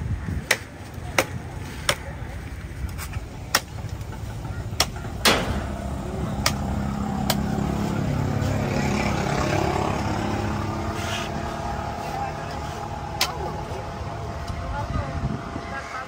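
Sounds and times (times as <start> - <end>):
voices: 0.0 - 16.0
vehicle engine running: 4.1 - 16.0.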